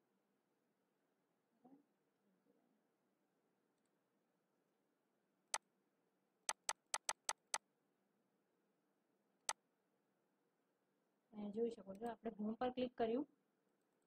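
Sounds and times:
computer mouse clicking: 6.5s - 7.6s.

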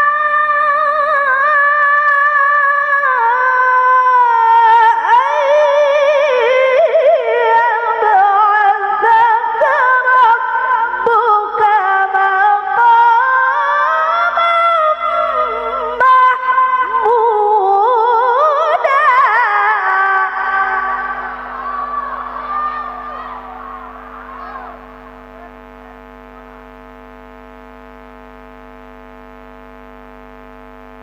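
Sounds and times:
woman reciting melodically: 0.0s - 25.2s.

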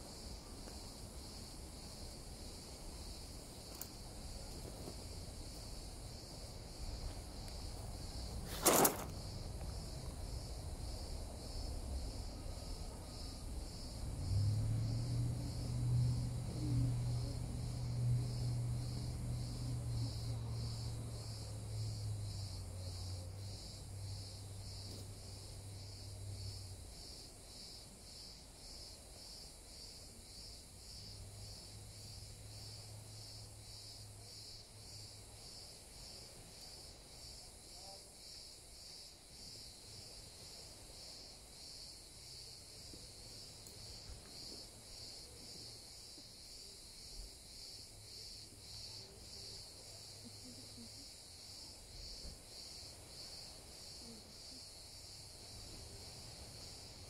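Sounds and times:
crickets chirping: 0.0s - 57.0s.

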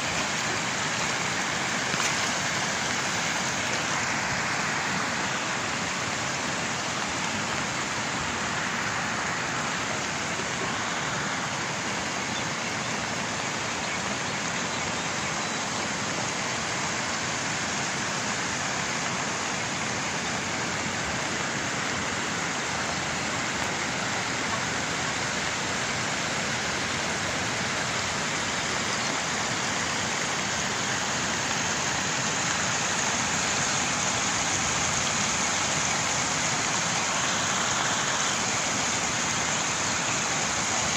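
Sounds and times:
floodwater rushing: 0.0s - 40.9s
heavy rain: 0.0s - 40.9s.

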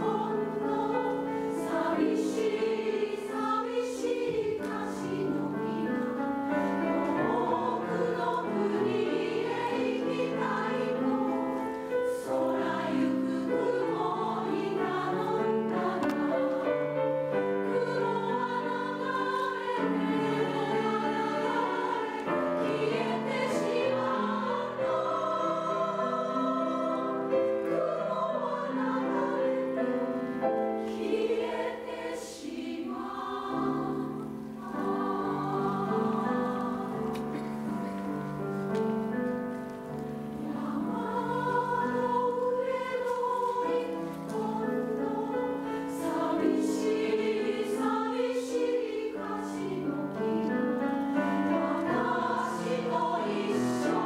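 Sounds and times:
piano accompaniment: 0.0s - 54.0s
women's choir singing: 0.0s - 54.0s.

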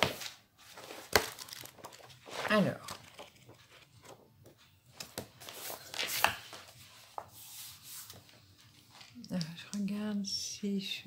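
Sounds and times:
paper pages turning: 0.0s - 9.2s
hand rubbing over paper: 6.8s - 8.3s.

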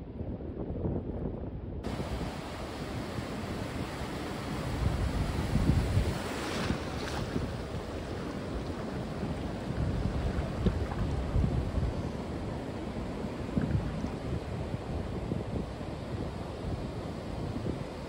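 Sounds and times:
wind rumbling on microphone: 0.0s - 18.0s
ocean surf breaking: 1.8s - 15.2s.

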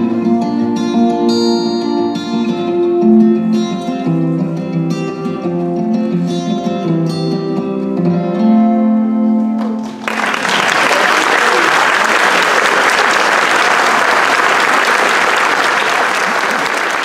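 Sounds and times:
audience applause: 9.7s - 17.0s.

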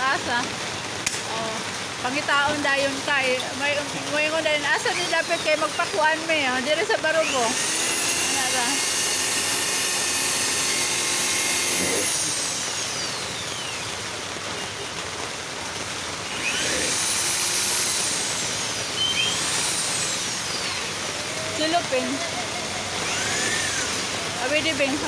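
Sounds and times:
electric drill whining into metal: 7.0s - 13.8s, 16.3s - 25.0s.

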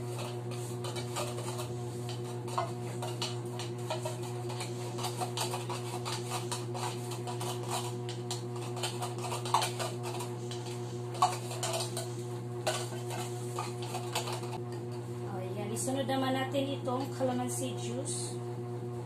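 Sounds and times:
metal spoon scraping tin can: 0.0s - 14.6s
steady low hum: 0.0s - 19.0s.

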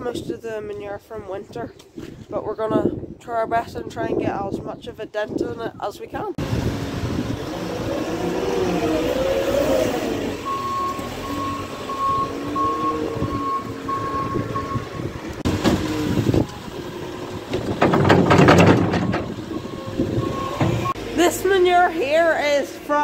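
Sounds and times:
diesel engine revving: 6.4s - 23.0s
reversing alarm beeping: 10.2s - 15.2s, 18.9s - 21.6s.

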